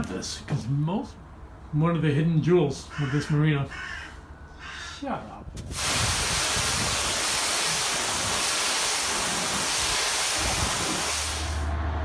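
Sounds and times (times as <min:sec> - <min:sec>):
pressure washer spray hissing: 0:05.7 - 0:11.7.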